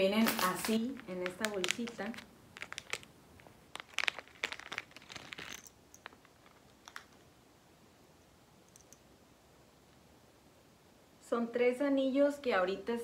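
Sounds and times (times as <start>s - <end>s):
packaging bag crinkling: 0.0s - 7.2s.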